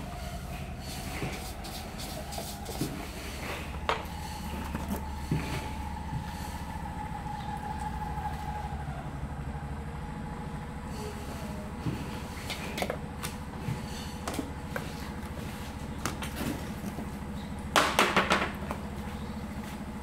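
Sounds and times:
clatter of sharp knocks: 17.8 - 18.8.

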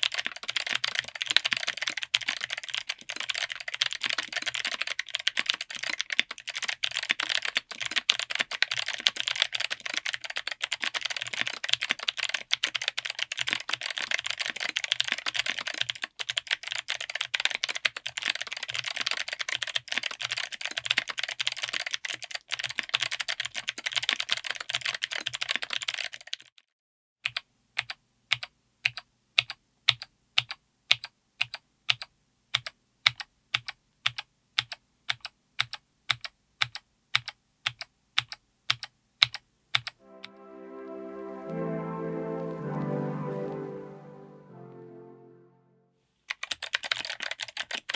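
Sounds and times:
mechanical keyboard clicks: 46.3 - 47.9.

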